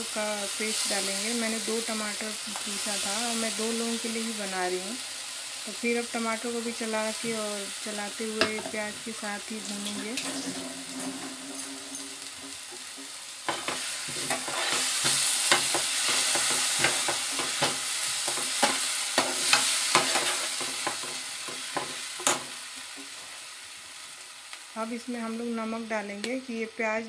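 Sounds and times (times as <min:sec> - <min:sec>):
paste sizzling in a pan: 0:00.0 - 0:26.7
spoon scraping a pan: 0:09.8 - 0:22.4.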